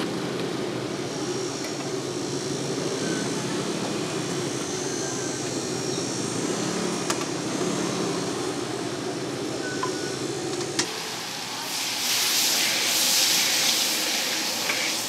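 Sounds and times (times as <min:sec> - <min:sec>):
gas burner roaring: 0:10.2 - 0:15.0.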